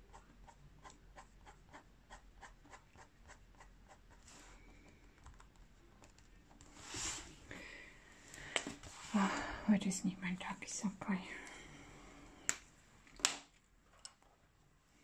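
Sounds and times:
pencil scratching on paper: 0.0s - 4.6s.

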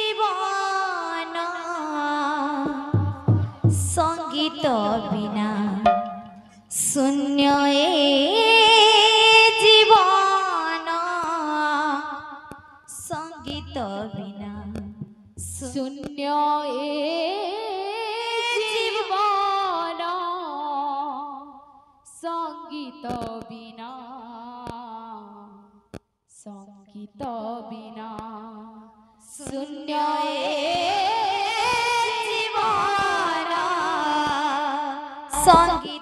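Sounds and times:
woman singing devotional melody: 0.0s - 5.8s, 6.7s - 25.7s, 26.4s - 36.0s
low drum beats: 2.7s - 6.6s, 13.4s - 15.8s, 35.4s - 35.9s.

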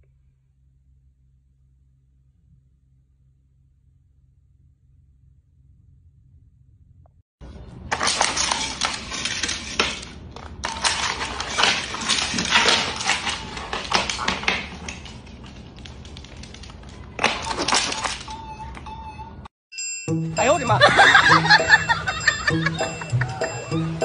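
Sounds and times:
plastic toys clattering: 7.7s - 18.8s
dog claws scrambling on hardwood: 10.8s - 18.2s.

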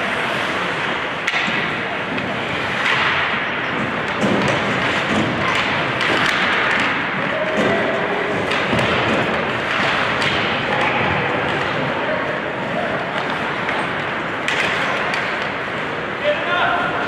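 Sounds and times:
arena noise: 0.0s - 17.0s
skates scraping ice: 0.0s - 17.0s
sticks and puck clacking: 0.0s - 17.0s
players shouting: 7.0s - 9.1s.

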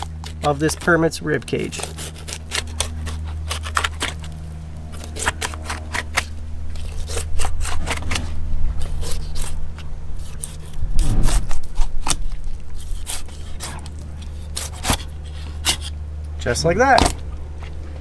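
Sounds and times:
knife crunching through fish bones: 0.0s - 16.0s
steady low hum: 0.0s - 18.0s
low rumble: 10.0s - 12.7s.

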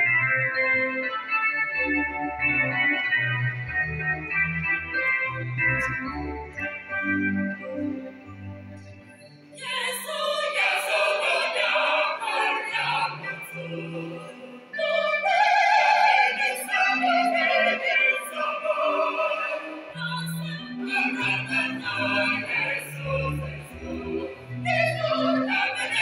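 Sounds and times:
mixed choir singing a carol: 9.6s - 26.0s.

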